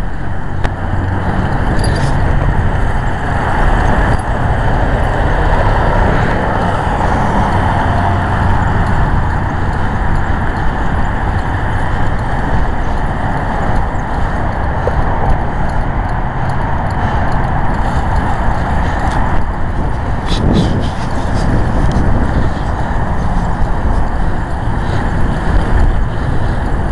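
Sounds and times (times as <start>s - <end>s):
road and engine rumble: 0.0s - 26.9s.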